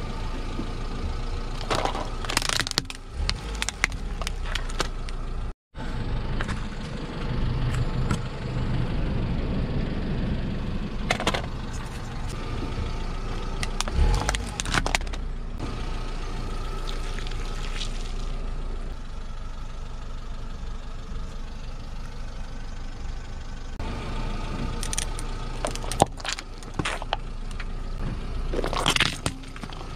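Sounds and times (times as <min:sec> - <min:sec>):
car engine low hum: 0:00.0 - 0:29.9
carton crushed by tyre: 0:01.6 - 0:05.2, 0:13.6 - 0:15.2, 0:24.8 - 0:27.7, 0:28.5 - 0:29.9
plastic casing cracking: 0:01.6 - 0:05.2, 0:13.6 - 0:15.2, 0:28.6 - 0:29.9.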